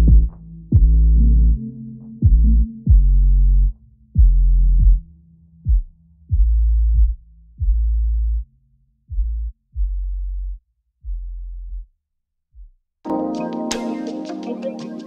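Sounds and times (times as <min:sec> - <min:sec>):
deep electronic bass hits: 0:00.0 - 0:08.5.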